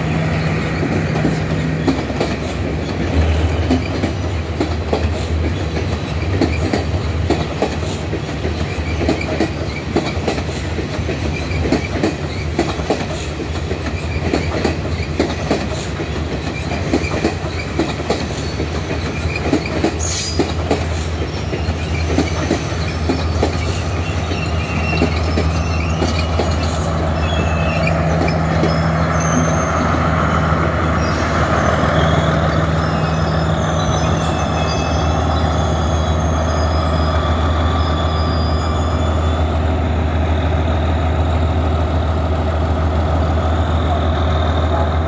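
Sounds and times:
wheels clicking over rail joints: 0.8s - 30.0s
wheel squeals: 16.5s - 39.7s.

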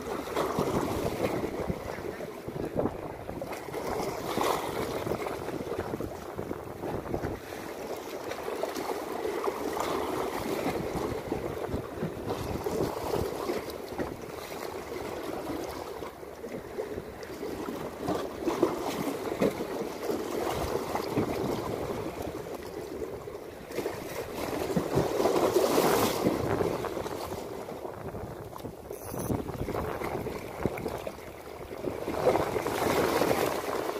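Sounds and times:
wind buffeting microphone: 0.0s - 7.6s, 25.8s - 33.8s
waves splashing against concrete: 28.6s - 33.9s.

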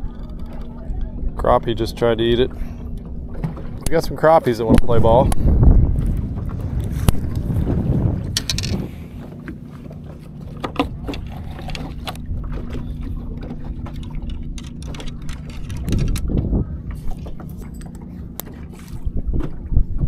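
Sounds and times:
steady low hum: 0.0s - 20.0s
wind noise: 3.4s - 9.8s, 10.7s - 20.0s
fishing reel clicks and knocks: 8.3s - 8.9s, 13.9s - 16.4s.

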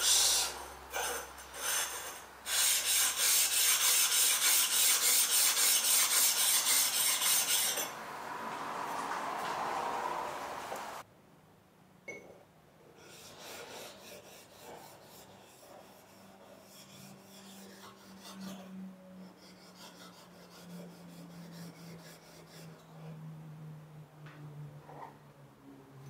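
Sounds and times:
blade scraping on sharpening plate: 1.0s - 8.0s.

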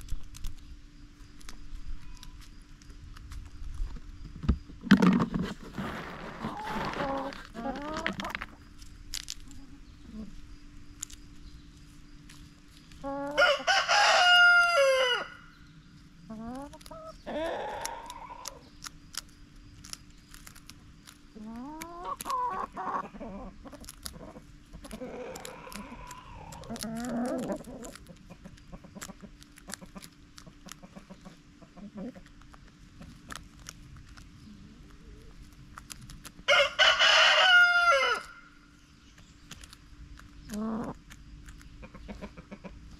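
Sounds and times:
pecking and scratching ticks: 0.0s - 14.8s, 15.6s - 42.9s
hens clucking: 4.9s - 8.7s, 12.9s - 15.3s, 16.0s - 19.0s, 20.6s - 38.4s, 39.5s - 42.9s
rooster crowing: 13.3s - 15.4s, 36.5s - 38.5s.

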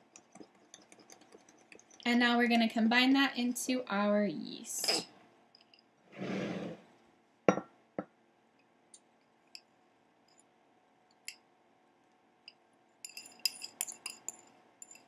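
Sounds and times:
utensil scraping bowl: 6.1s - 6.8s.

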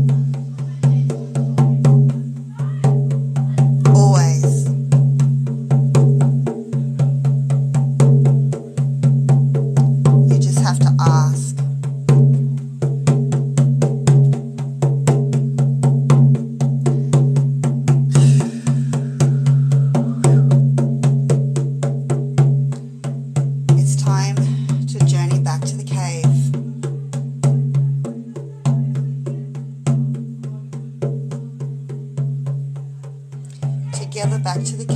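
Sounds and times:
frame drum beating: 0.0s - 34.9s.

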